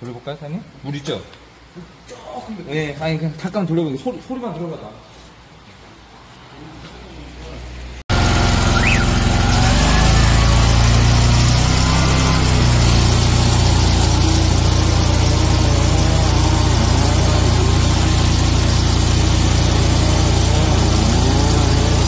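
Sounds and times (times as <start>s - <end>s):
engine hum: 8.1s - 22.0s
loud hiss of water jetting: 8.1s - 22.0s.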